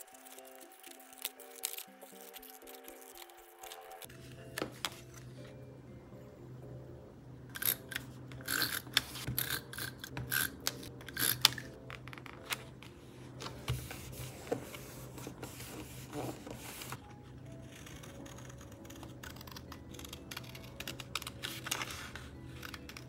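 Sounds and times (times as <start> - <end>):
paper stickers rustling: 0.0 - 5.2
soft background music: 0.0 - 23.0.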